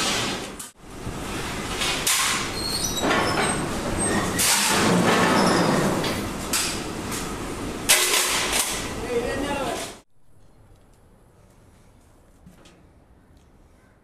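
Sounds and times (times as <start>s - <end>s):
steel plate scraping and clanking: 1.7s - 6.1s.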